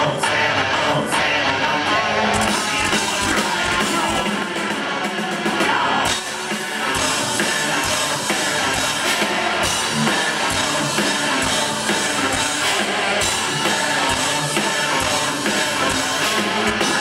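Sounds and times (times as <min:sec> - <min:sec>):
metal band playing live: 0:00.0 - 0:17.0.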